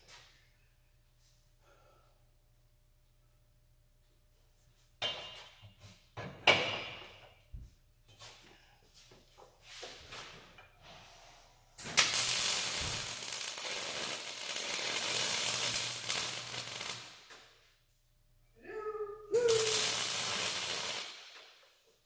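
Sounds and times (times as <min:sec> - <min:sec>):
electric welding arc burning: 0:11.8 - 0:17.3, 0:19.5 - 0:21.5.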